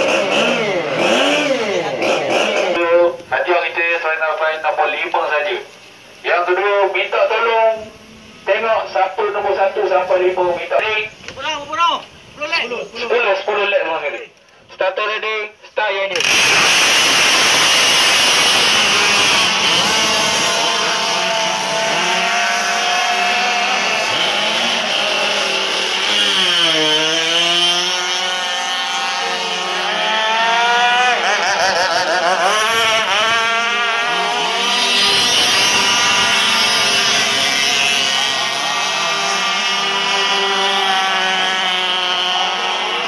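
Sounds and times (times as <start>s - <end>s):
model powerboat engines whining: 16.2s - 43.0s.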